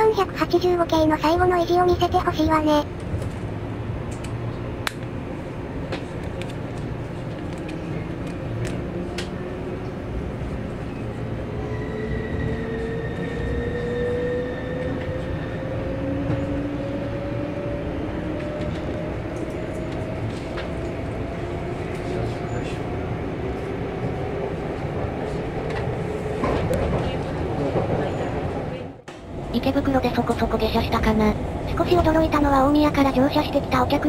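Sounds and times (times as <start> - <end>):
electric train accelerating: 6.8 - 34.0.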